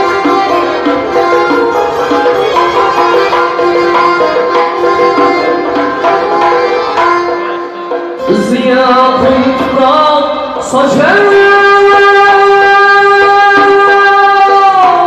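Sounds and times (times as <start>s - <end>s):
folk band with accordion: 0.0s - 10.7s.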